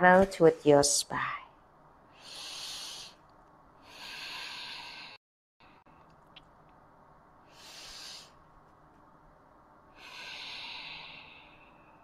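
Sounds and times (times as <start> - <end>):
woman breathing deeply: 2.1 - 3.2, 3.8 - 5.9, 7.4 - 8.5, 9.9 - 12.0.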